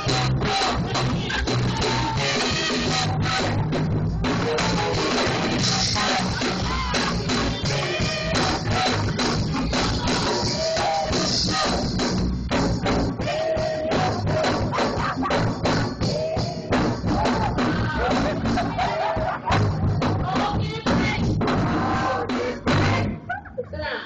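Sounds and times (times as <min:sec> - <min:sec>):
youth choir singing: 0:00.0 - 0:03.6, 0:04.6 - 0:12.0, 0:12.9 - 0:15.4, 0:16.0 - 0:23.2
drum kit: 0:00.0 - 0:23.2
bass playing: 0:00.0 - 0:23.3.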